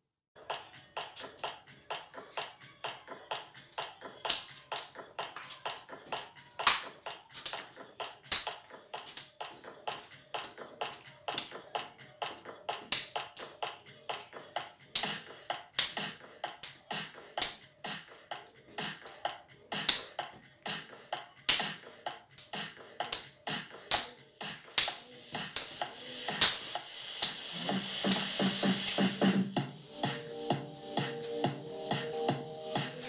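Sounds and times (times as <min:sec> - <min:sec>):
dance music with sharp beat: 0:00.4 - 0:33.0.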